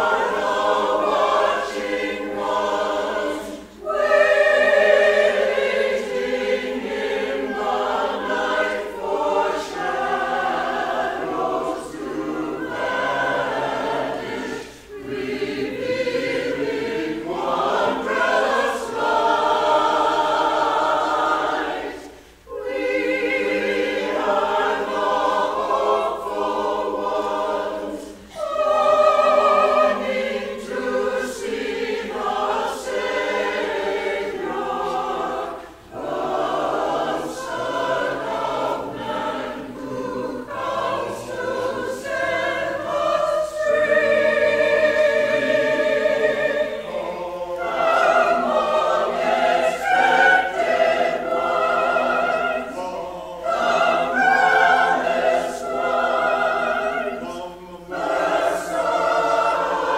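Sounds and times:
choir singing in harmony: 0.0s - 59.9s.

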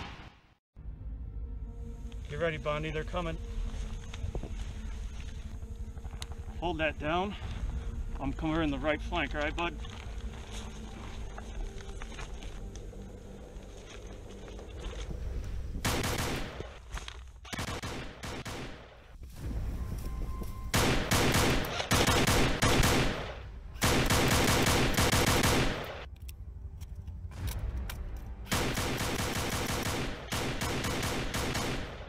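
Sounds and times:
airsoft rifles automatic fire: 20.8s - 26.0s, 28.5s - 32.0s.

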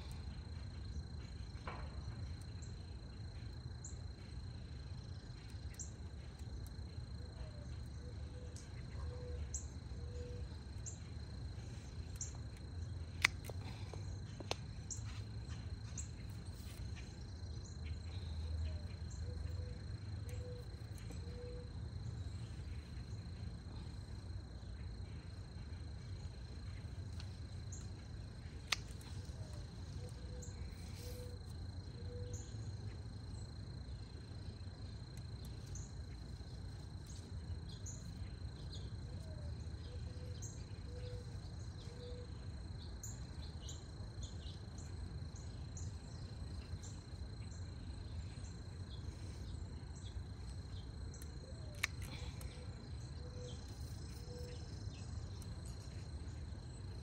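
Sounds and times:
high insect trill: 0.0s - 57.0s
garden snips clicking: 13.1s - 14.8s, 28.6s - 29.6s, 51.2s - 52.6s.

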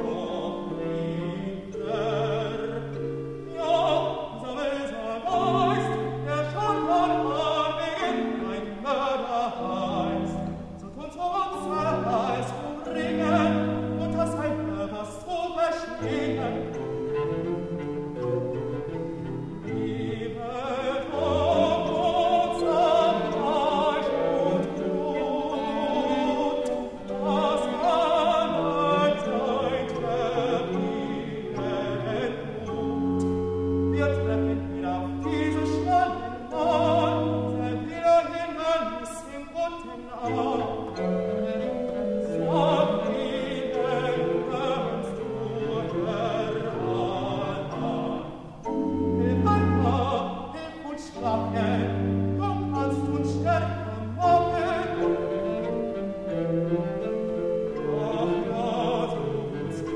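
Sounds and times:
baroque ensemble: 0.0s - 59.9s
operatic singing: 0.0s - 59.9s
cello and organ bass line: 15.9s - 38.0s, 51.2s - 59.9s.

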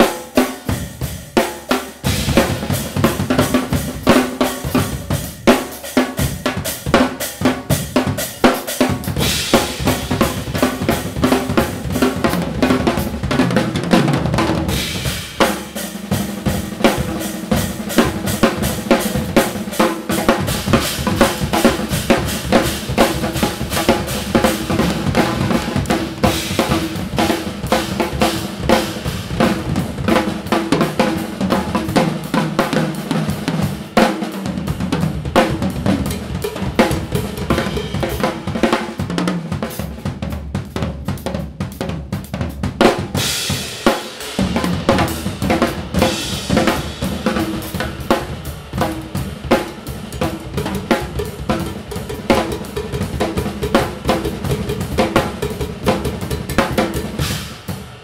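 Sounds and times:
drum kits playing fast: 0.0s - 58.0s
cymbals crashing: 43.2s - 58.0s.

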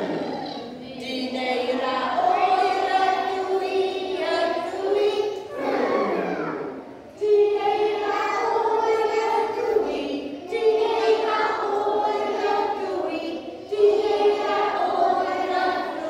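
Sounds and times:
children singing together: 0.0s - 16.0s.

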